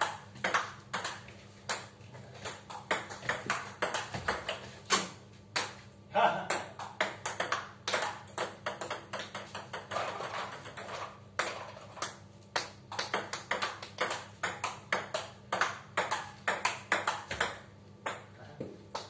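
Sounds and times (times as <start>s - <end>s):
ball bouncing on table: 0.0s - 5.8s, 6.5s - 19.0s
ball clicking off bats: 6.5s - 19.0s.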